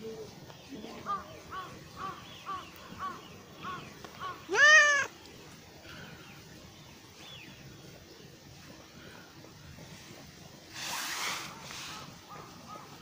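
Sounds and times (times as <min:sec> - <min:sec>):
cat meowing: 0:04.5 - 0:05.1
short faint cat calls: 0:04.5 - 0:05.1.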